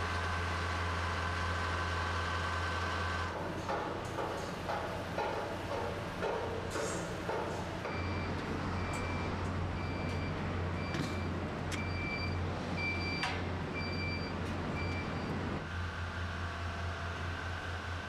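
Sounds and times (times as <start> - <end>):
electronic warning beeps: 7.8 - 15.4.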